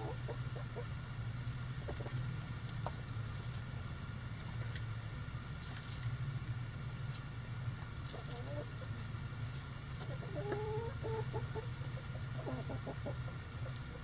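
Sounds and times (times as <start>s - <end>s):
chickens clucking: 0.0s - 1.0s, 1.8s - 2.2s, 8.0s - 9.1s, 9.9s - 14.0s
steady low hum: 0.0s - 14.0s.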